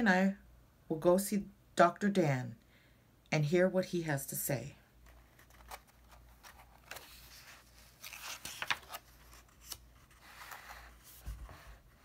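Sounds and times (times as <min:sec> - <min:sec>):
book page turning: 0:05.0 - 0:12.0.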